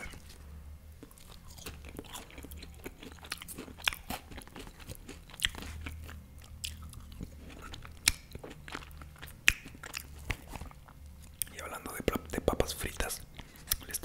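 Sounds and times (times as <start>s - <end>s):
fried potatoes crunching: 1.0s - 11.6s
wet mouth clicks while chewing: 1.0s - 11.6s, 13.4s - 14.0s.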